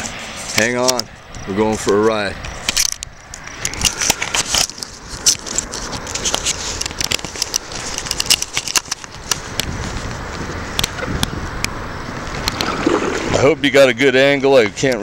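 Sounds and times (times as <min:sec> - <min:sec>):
camera handling clicks and scrapes: 0:02.5 - 0:11.4.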